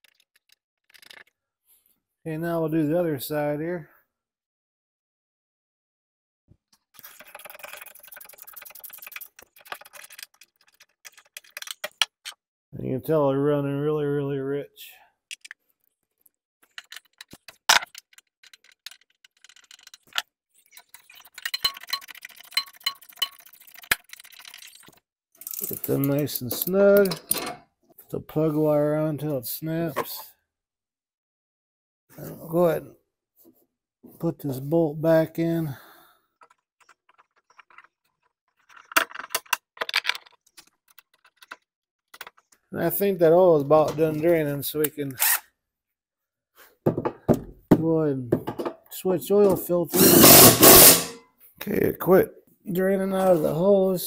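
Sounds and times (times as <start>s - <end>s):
metallic clicks of bolt and tools: 25.4s - 27.6s.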